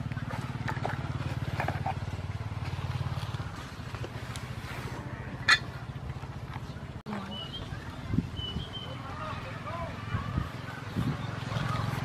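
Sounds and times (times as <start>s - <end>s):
small engine running: 0.0s - 6.6s.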